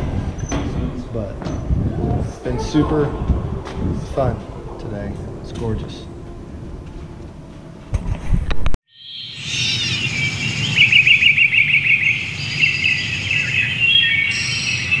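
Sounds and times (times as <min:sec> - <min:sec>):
small birds chirping and trilling: 0:08.9 - 0:15.0.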